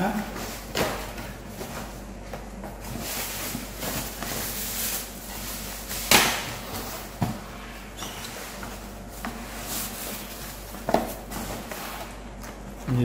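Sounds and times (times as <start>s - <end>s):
cardboard slap: 6.0s - 7.4s.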